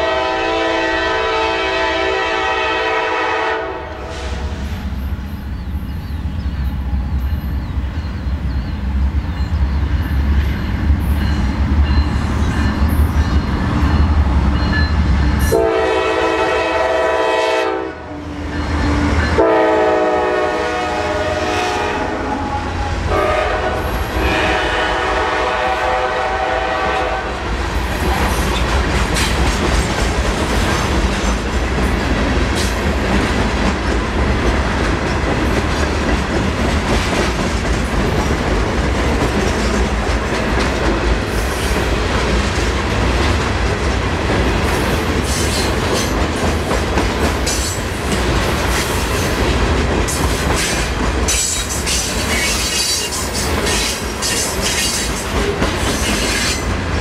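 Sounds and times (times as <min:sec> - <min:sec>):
locomotive air horn: 0:00.0 - 0:04.6, 0:15.5 - 0:18.3, 0:19.4 - 0:27.4.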